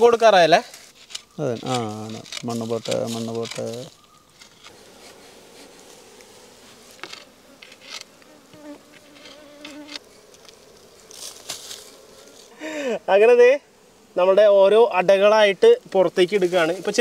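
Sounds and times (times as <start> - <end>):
stick scraping soil and stones: 0.0 - 12.6, 16.2 - 17.0
bees buzzing: 0.0 - 17.0.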